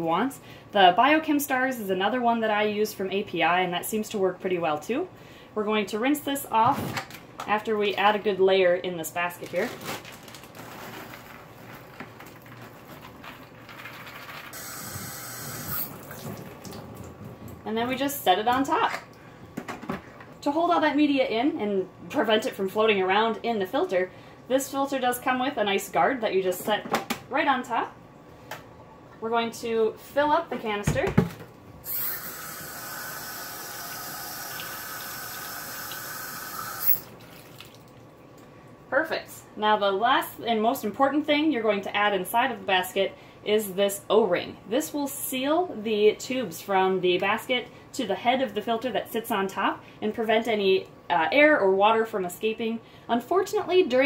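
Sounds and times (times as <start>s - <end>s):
tap water running into sink: 14.8s - 17.2s, 32.4s - 37.9s.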